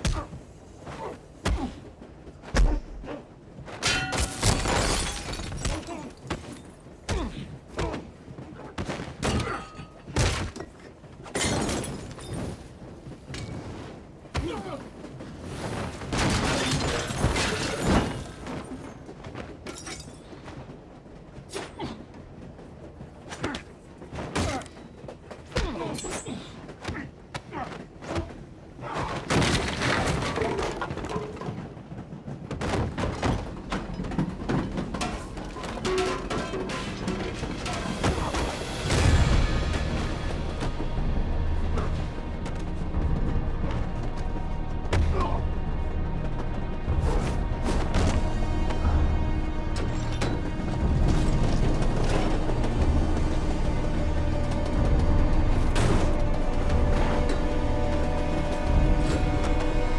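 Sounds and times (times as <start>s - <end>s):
glass shattering: 3.8s - 6.2s.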